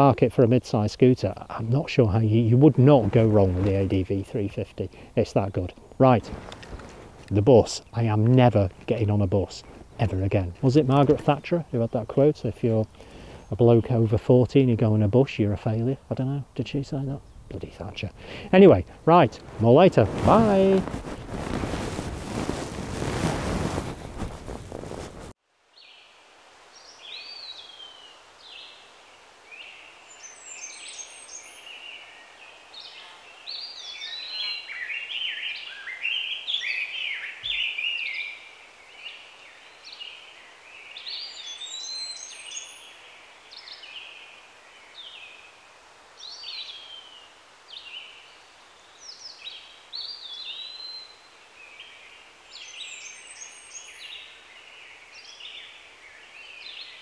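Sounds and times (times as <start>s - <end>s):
birds singing and chirping: 30.1s - 45.4s.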